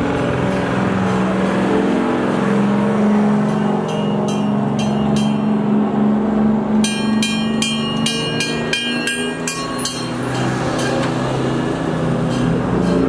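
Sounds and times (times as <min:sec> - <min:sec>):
fire truck engines droning: 0:00.0 - 0:13.0
fire engine bell ringing: 0:03.4 - 0:05.7, 0:06.8 - 0:11.5.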